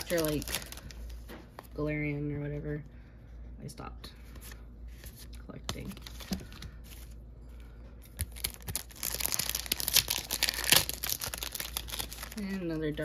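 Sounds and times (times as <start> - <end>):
foil wrapper crinkling and tearing: 0.0 - 1.2, 8.1 - 13.0.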